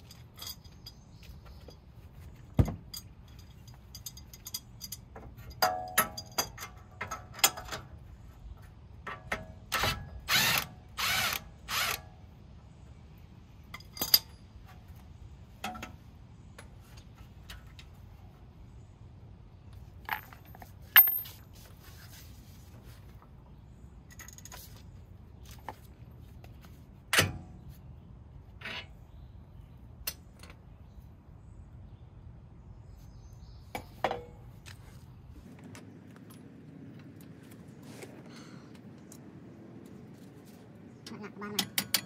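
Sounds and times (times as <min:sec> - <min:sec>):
metal tools clinking on bolts: 0:00.0 - 0:01.9, 0:02.5 - 0:08.0, 0:13.7 - 0:14.5, 0:20.0 - 0:21.5, 0:41.4 - 0:42.0.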